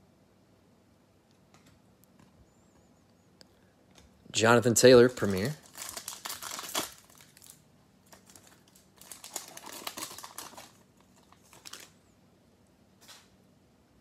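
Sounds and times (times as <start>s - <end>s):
foil wrapper tearing and crinkling: 5.0s - 12.0s.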